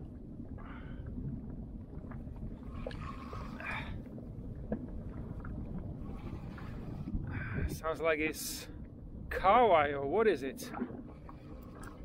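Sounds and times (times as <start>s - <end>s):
water sloshing against boat: 0.0s - 9.4s.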